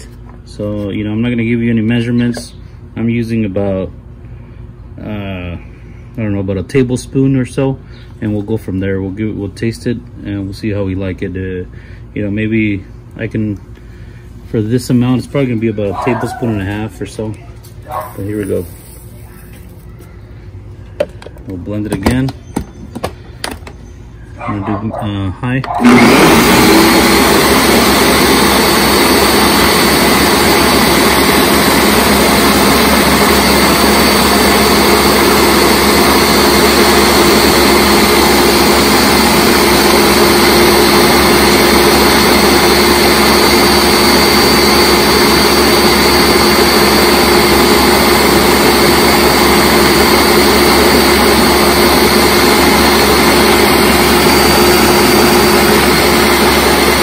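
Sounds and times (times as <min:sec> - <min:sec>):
blender motor whine: 0:25.7 - 0:57.0.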